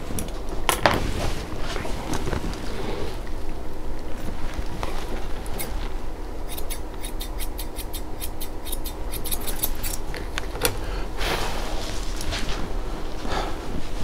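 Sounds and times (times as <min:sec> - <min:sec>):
steady low hum: 0:00.0 - 0:14.0
grooming shears snipping: 0:06.5 - 0:10.8.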